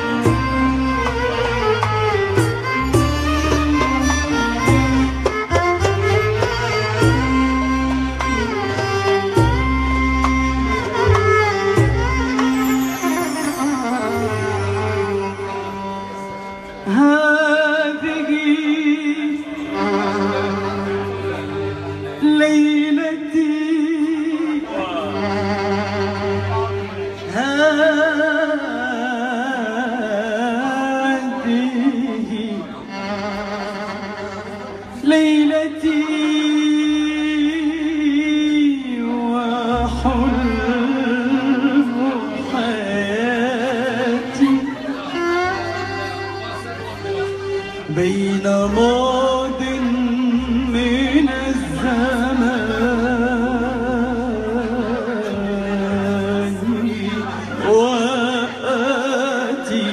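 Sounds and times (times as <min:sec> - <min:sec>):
sustained instrumental accompaniment: 0:00.0 - 0:59.9.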